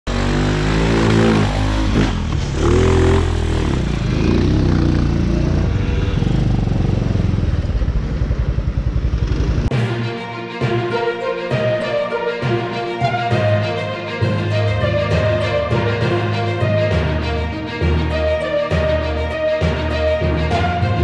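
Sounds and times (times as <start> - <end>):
small engine revving: 0.1 - 9.7.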